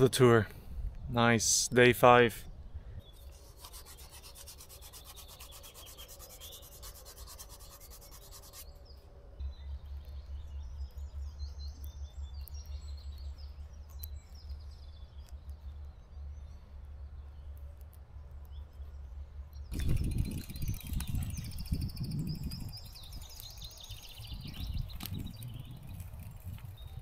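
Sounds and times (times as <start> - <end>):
birds chirping: 1.0 - 27.0
hands rubbing rubber tube: 3.3 - 8.6
low pulsing rumble: 9.2 - 27.0.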